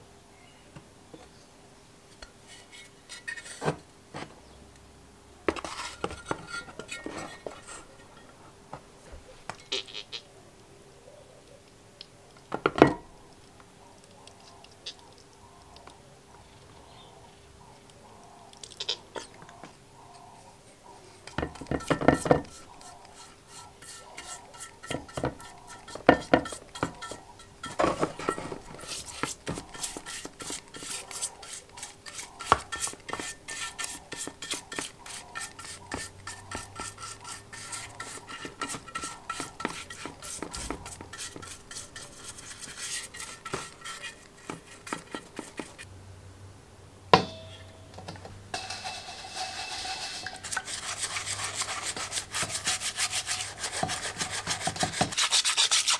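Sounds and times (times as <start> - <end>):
brush and metal plate knocking tub: 21.3 - 45.8, 48.6 - 55.9
paintbrush rubbing and dabbing: 21.7 - 45.8, 48.8 - 55.9.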